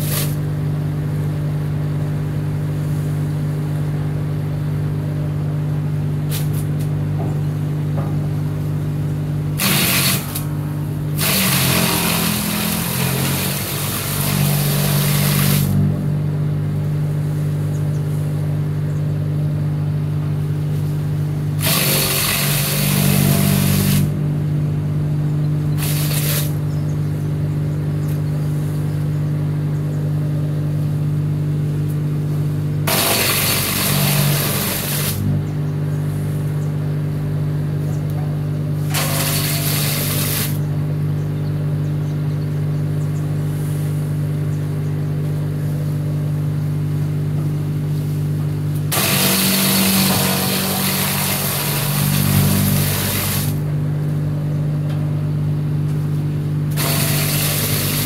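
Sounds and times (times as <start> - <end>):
wood chipper humming: 0.0 - 58.0
branches being shredded: 11.2 - 15.9, 38.9 - 40.6, 48.9 - 53.6.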